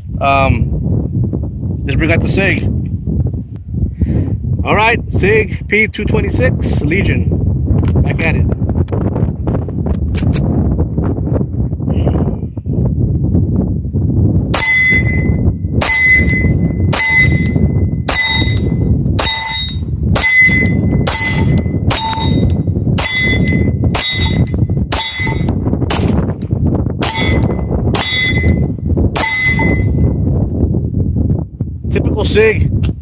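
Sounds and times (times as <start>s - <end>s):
wind rumbling on microphone: 0.0s - 33.0s
steel plate target clanging: 14.6s - 25.6s, 27.0s - 30.1s.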